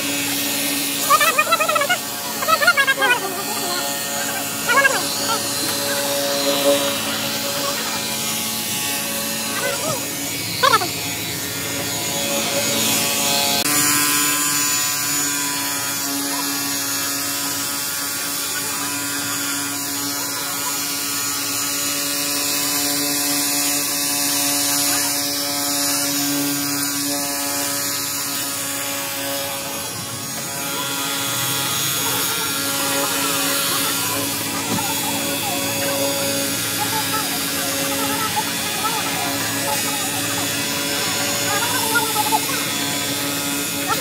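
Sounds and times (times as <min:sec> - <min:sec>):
water jet spraying: 0:00.0 - 0:13.0, 0:24.3 - 0:44.0
pressure washer motor whine: 0:00.0 - 0:44.0.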